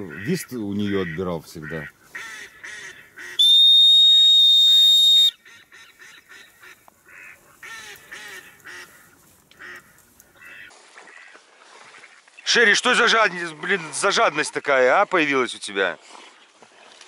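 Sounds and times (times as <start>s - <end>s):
duck quacks: 0.0s - 3.4s, 5.4s - 11.4s
high-pitched whistle blast: 3.4s - 5.4s.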